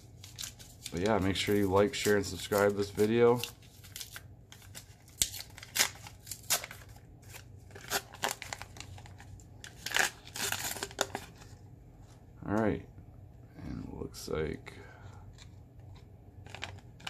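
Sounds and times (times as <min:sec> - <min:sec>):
wrapper tearing and crinkling: 0:00.2 - 0:11.4.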